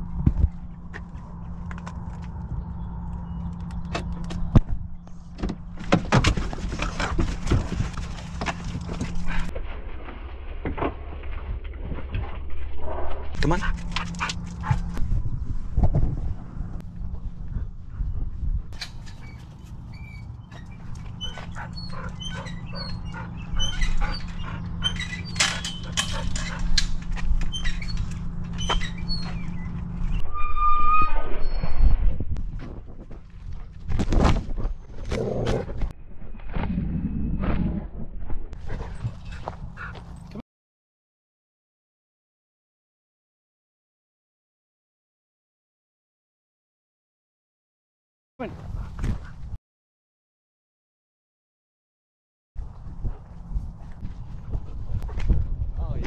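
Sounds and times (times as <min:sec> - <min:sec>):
steady low hum: 0:13.3 - 0:30.2
dogs squeaking: 0:19.1 - 0:26.8, 0:27.4 - 0:29.8
chain-link gate rattling: 0:20.6 - 0:29.4.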